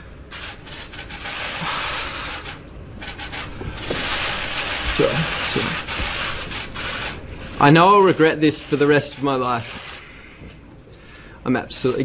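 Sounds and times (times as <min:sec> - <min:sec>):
man breathing shakily: 0:01.6 - 0:02.5.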